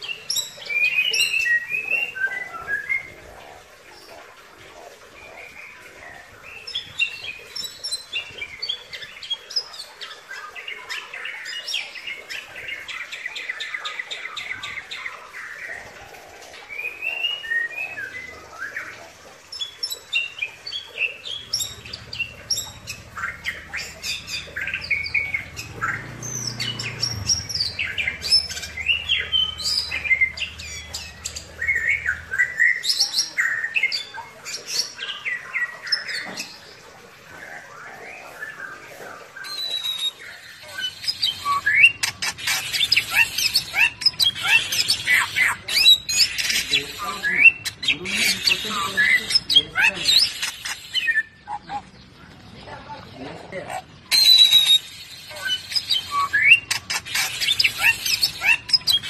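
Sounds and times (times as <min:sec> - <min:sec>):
bird singing whistles and trills: 0:00.0 - 0:03.2, 0:16.7 - 0:19.0, 0:39.4 - 0:51.6, 0:54.1 - 0:59.0.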